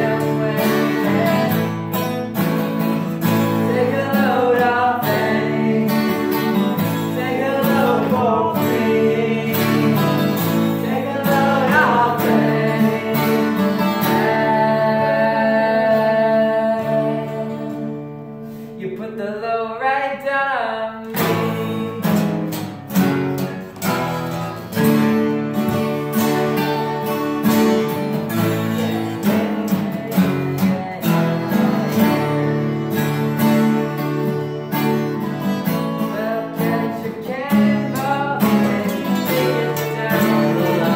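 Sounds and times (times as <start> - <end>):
sliding guitar line: 0.0 - 18.8, 21.0 - 40.9
acoustic guitars strumming: 0.0 - 40.9.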